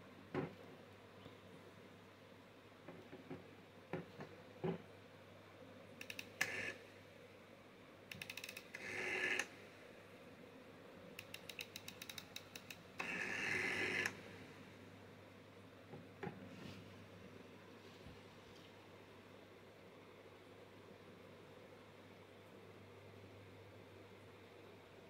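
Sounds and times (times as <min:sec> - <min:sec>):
rotary dial whirring back: 0:06.0 - 0:06.8, 0:08.1 - 0:09.6, 0:11.2 - 0:14.4
rotary dial clicking: 0:08.1 - 0:09.5, 0:11.2 - 0:14.2.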